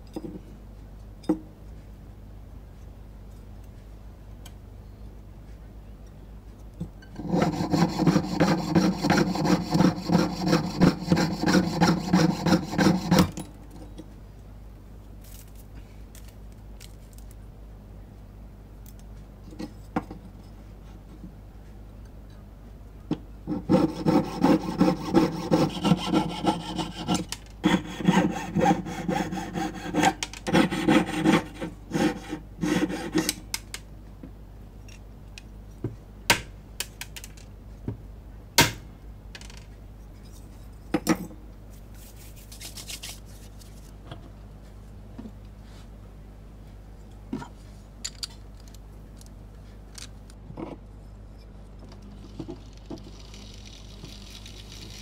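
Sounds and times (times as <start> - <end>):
hand tool rasping strokes: 7.2 - 13.3, 23.6 - 33.3.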